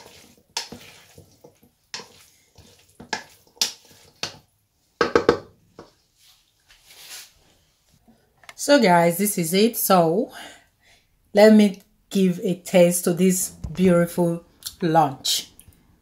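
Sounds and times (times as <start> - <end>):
spoon stirring in metal bowl: 0.0 - 6.0.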